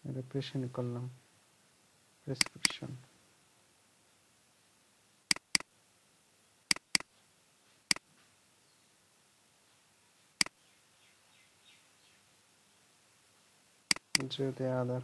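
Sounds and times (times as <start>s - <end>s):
faint room hiss: 0.0s - 15.0s
computer mouse clicking: 2.4s - 2.8s, 5.3s - 5.7s, 6.7s - 7.1s, 13.9s - 14.3s.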